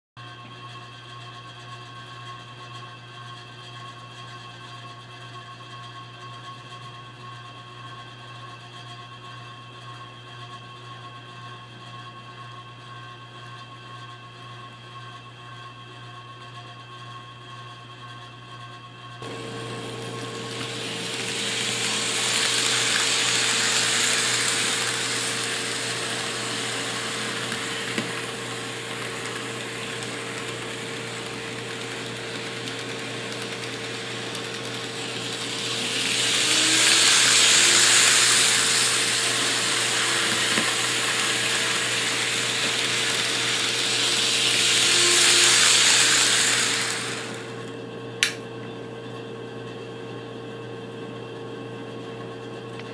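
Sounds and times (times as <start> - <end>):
wheels rolling on rails: 19.2 - 47.7
model train motors whirring: 19.2 - 48.4
steady hum: 19.2 - 48.4.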